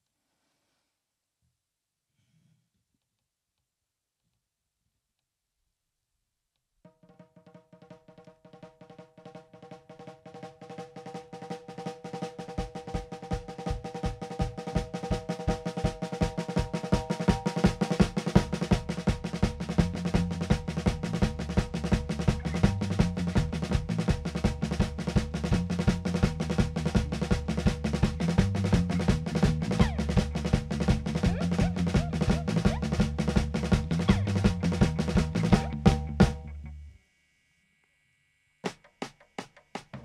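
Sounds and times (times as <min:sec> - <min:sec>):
fast drum beat: 0:07.8 - 0:36.5
bass drum: 0:12.1 - 0:36.9
heavy bass: 0:16.2 - 0:37.0
instrumental rock music: 0:16.4 - 0:36.8.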